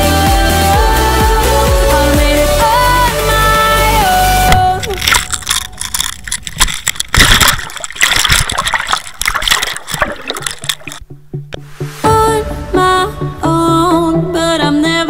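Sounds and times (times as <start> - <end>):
water splashing and gurgling: 4.5 - 12.4.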